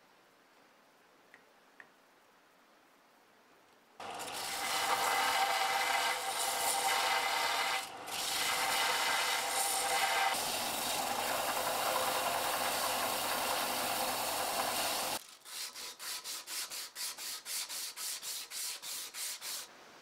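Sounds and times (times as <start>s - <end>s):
belt sander grinding wood: 4.0s - 15.2s
motor hum: 4.0s - 15.2s.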